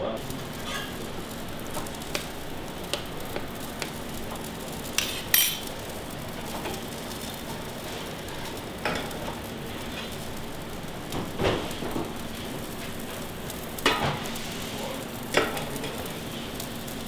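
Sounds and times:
kitchen background hiss: 0.0 - 17.0
utensil clinking on metal pans: 0.6 - 1.0, 5.0 - 5.7, 15.3 - 16.0.

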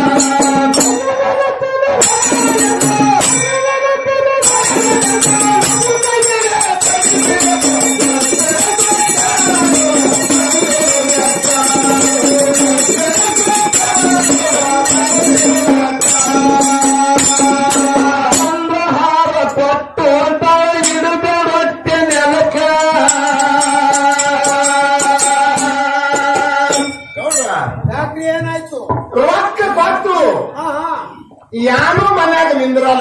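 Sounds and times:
men singing devotional folk song: 0.0 - 33.0
small hand cymbals clinking: 22.7 - 27.6.

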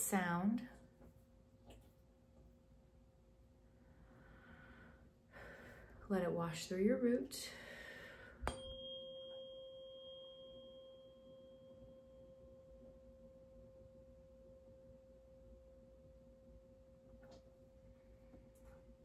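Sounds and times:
tuning fork ringing: 8.1 - 17.9.

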